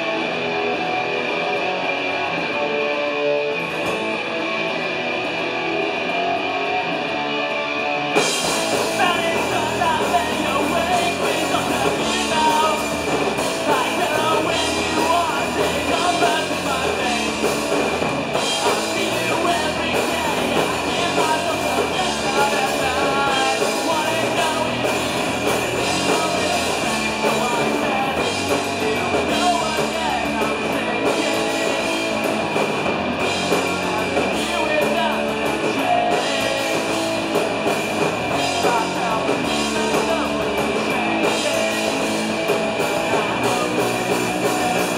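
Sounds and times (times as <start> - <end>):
drum kit: 0.0 - 44.9
electric guitars: 0.0 - 44.9
person singing: 8.7 - 32.5, 33.2 - 44.9.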